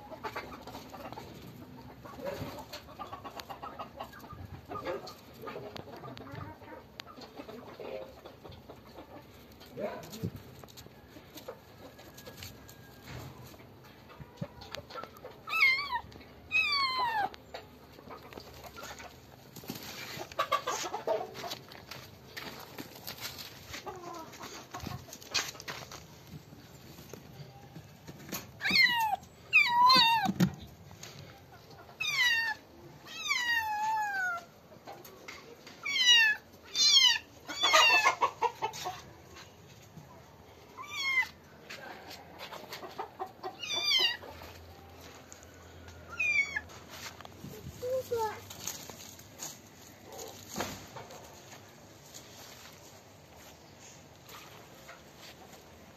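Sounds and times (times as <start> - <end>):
kitten meowing: 15.5 - 17.4, 28.6 - 30.5, 32.0 - 34.5, 35.8 - 38.0, 40.8 - 41.4, 43.6 - 44.2, 46.1 - 46.6.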